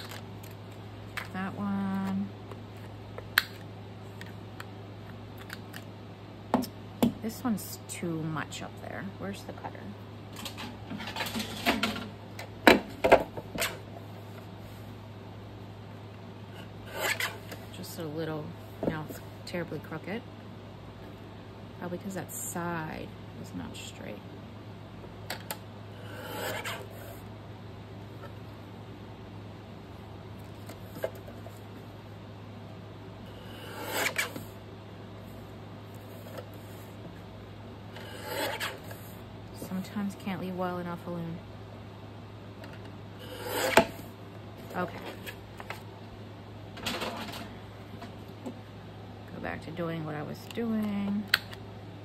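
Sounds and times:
paper cutter rasping cuts: 0:26.0 - 0:27.0, 0:33.4 - 0:34.4, 0:38.0 - 0:39.0, 0:43.2 - 0:44.0.

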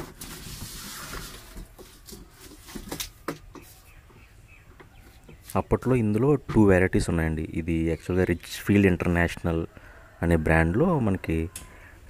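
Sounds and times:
cardboard rustling: 0:00.0 - 0:03.8.

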